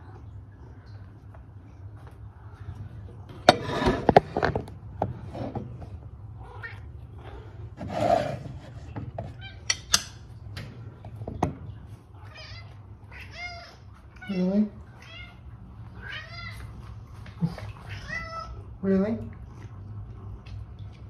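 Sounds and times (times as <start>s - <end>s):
clicks and knocks of handling: 8.8s - 11.7s.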